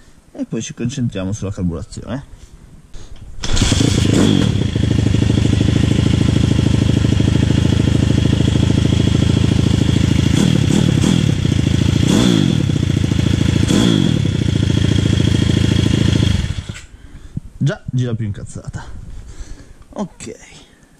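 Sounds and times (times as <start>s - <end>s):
motorbike engine idling and revving: 3.4s - 16.9s.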